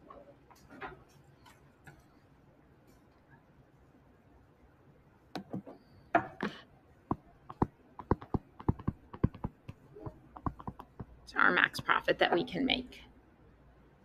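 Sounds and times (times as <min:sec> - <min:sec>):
stylus tapping on tablet screen: 0:05.3 - 0:05.7, 0:07.1 - 0:11.2.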